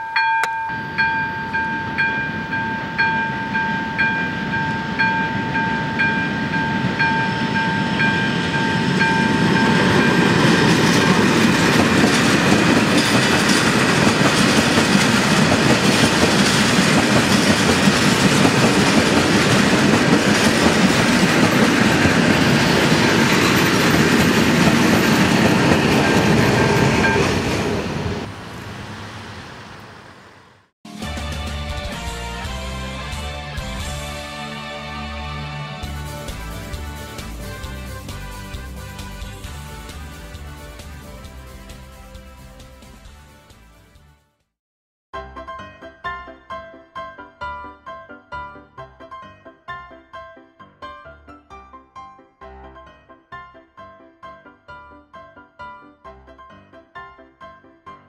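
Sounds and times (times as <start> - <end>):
level crossing warning bell: 0.0 - 12.2
freight train passing: 0.0 - 43.2.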